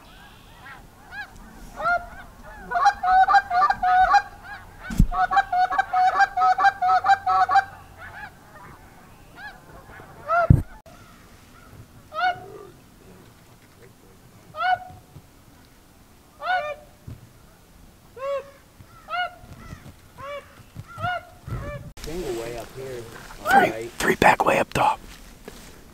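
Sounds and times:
geese honking: 0:00.0 - 0:12.8, 0:14.5 - 0:15.0, 0:16.4 - 0:17.0.

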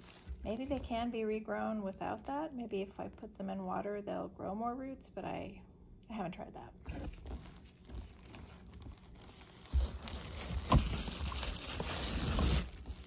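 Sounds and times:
plastic packaging crinkling: 0:00.0 - 0:01.2, 0:07.0 - 0:13.0.

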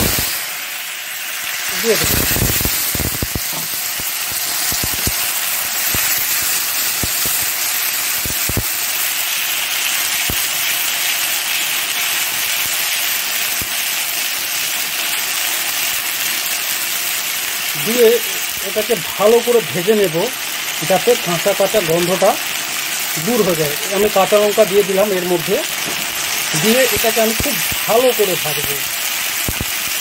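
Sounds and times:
paste sizzling in hot oil: 0:00.0 - 0:30.0.

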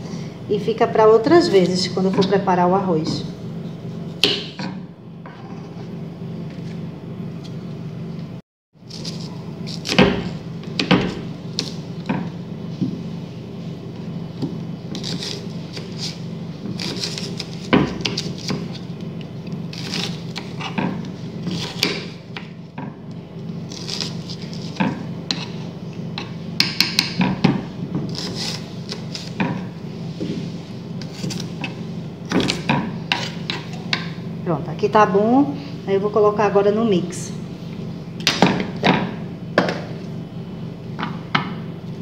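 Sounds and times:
knife slicing onion: 0:08.8 - 0:12.1, 0:14.5 - 0:22.5, 0:23.6 - 0:29.8, 0:31.0 - 0:34.0.

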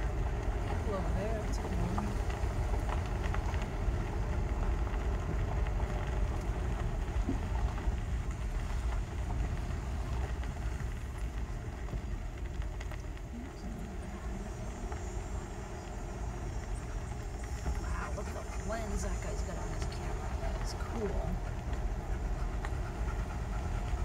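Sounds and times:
car driving on gravel: 0:00.0 - 0:24.0.

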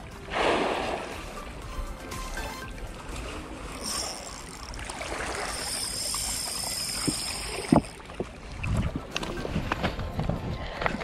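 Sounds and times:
water noise: 0:00.0 - 0:11.0
wind noise: 0:06.9 - 0:11.0.

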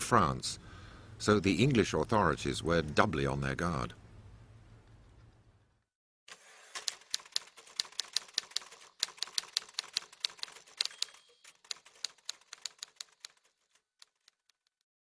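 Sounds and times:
typewriter keys clacking: 0:06.7 - 0:14.8
typewriter bell ringing: 0:10.2 - 0:12.6.

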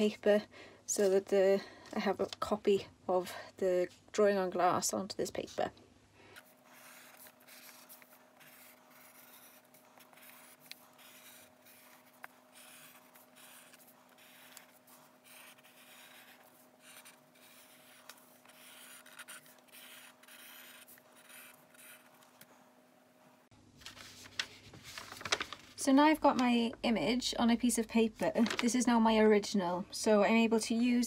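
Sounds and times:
faint steady hum: 0:00.0 - 0:31.0
marker pen scratching on paper: 0:06.4 - 0:22.4.

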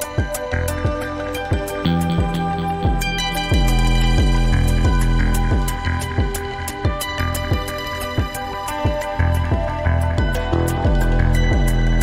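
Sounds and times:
struck pitched notes: 0:01.8 - 0:05.4
steady low drone: 0:01.9 - 0:06.2.

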